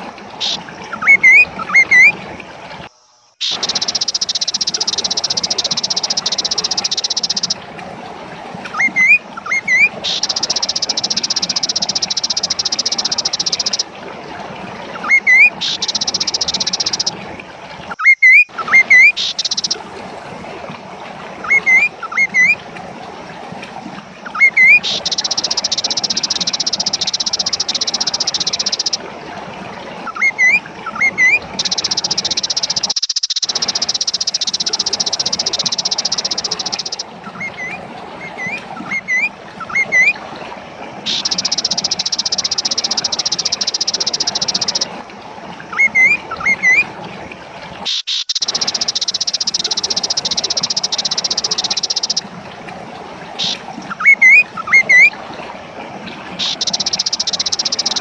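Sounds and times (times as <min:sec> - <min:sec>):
bird calling rising notes: 0:00.4 - 0:02.2, 0:08.7 - 0:13.8, 0:53.4 - 0:55.1.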